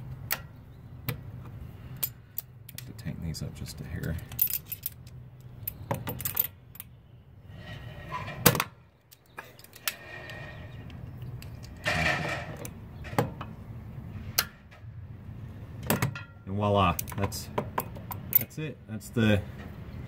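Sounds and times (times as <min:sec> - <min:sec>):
metal scraping: 0:07.4 - 0:08.7, 0:09.4 - 0:13.2.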